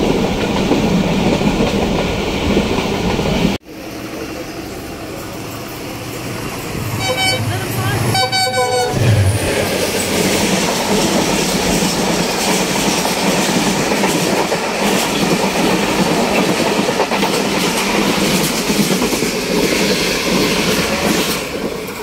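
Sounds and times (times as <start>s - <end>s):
passing train rush and rumble: 0.0s - 22.0s
steel wheels clattering on rails: 8.8s - 22.0s.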